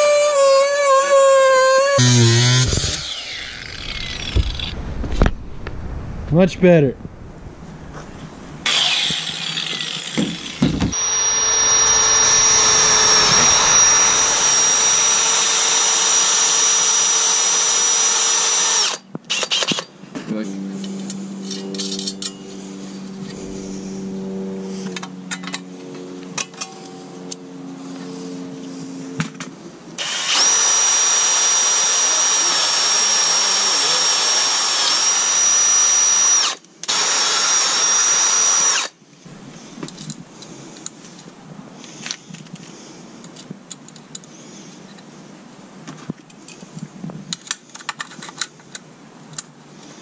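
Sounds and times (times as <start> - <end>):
cordless drill boring through metal: 0.0 - 4.7, 8.6 - 19.7, 30.0 - 38.9
metallic clicks of parts handled: 46.2 - 49.5.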